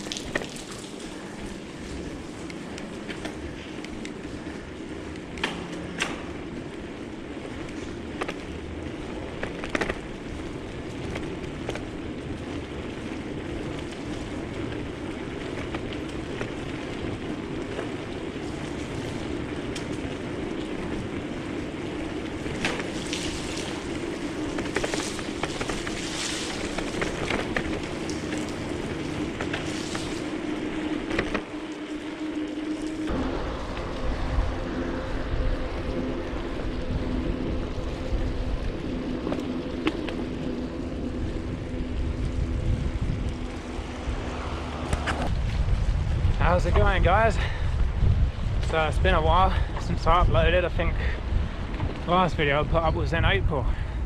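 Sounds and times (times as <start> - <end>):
bike clicks and knocks: 0.0 - 34.1, 36.5 - 43.6, 44.8 - 45.6, 51.6 - 52.2
bicycle tyres rolling: 0.0 - 54.0
low hum: 0.0 - 54.0.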